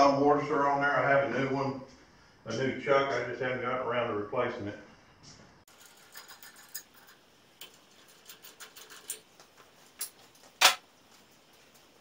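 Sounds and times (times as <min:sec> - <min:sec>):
tools and metal parts clicking: 0:05.7 - 0:09.4.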